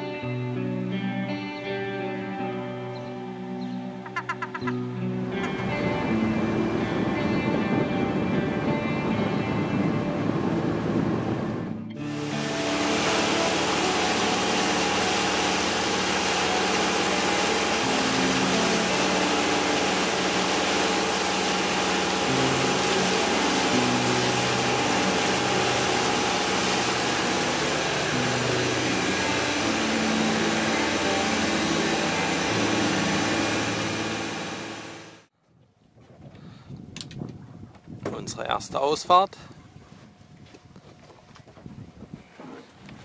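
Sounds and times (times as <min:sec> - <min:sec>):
music with held notes: 0:00.0 - 0:34.7
motorboat engine drone: 0:00.0 - 0:35.3
rushing wake and wind: 0:04.7 - 0:35.3.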